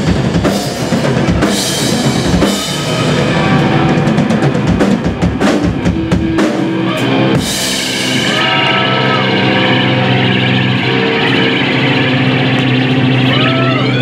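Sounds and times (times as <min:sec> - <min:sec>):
rapid drum hits: 0:00.0 - 0:11.6
electric guitars sustained chord: 0:01.6 - 0:14.0
thin high bending tone: 0:06.6 - 0:14.0.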